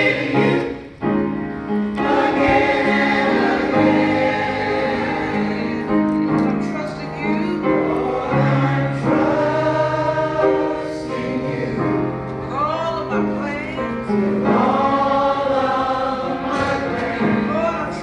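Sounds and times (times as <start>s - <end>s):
choir singing in harmony: 0.0s - 6.3s, 6.9s - 12.4s, 13.7s - 18.0s.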